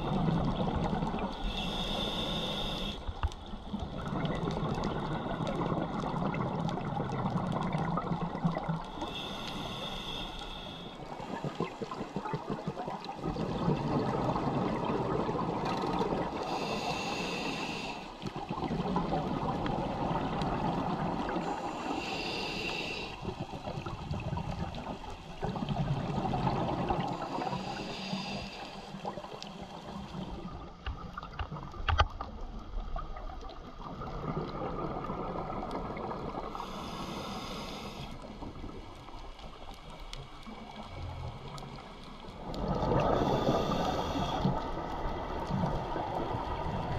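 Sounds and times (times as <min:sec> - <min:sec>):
regulator hissing inhale: 0:01.3 - 0:04.0, 0:08.8 - 0:12.0, 0:16.4 - 0:18.3, 0:21.4 - 0:23.5, 0:27.0 - 0:30.3, 0:36.5 - 0:38.5, 0:43.0 - 0:44.8
exhaust bubbles gurgling: 0:03.7 - 0:08.8, 0:11.3 - 0:16.4, 0:18.4 - 0:21.6, 0:40.5 - 0:46.9.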